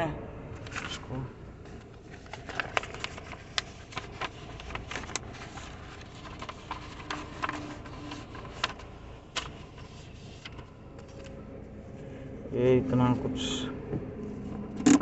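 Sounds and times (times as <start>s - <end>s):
paper rustling: 0.6s - 11.4s.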